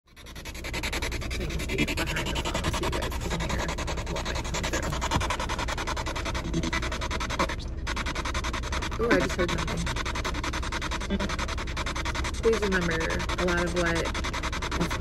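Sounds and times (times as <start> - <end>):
pulsing radio static: 0.2 - 15.0
scraps of broadcast sound: 1.3 - 15.0.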